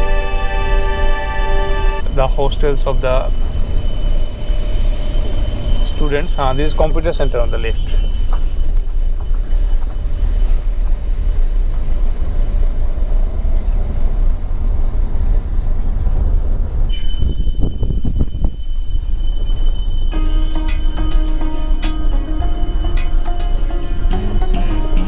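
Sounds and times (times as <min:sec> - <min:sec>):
thin high tones: 0:00.0 - 0:08.8, 0:16.9 - 0:25.0.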